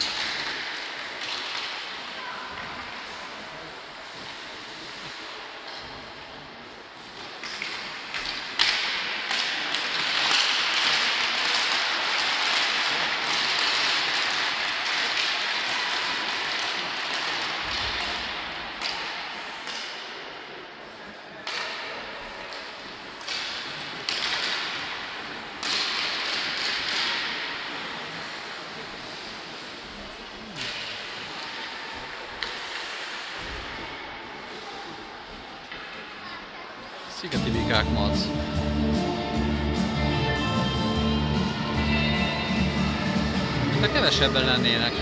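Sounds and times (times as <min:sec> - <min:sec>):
sharp cracks with echo: 0:07.5 - 0:20.2.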